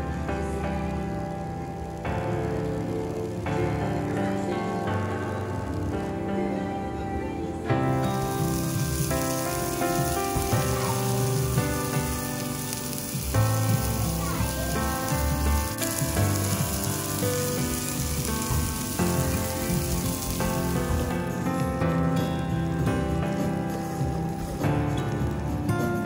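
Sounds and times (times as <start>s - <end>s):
background music: 0.0s - 26.0s
meat sizzling on a hot plate: 7.8s - 26.0s.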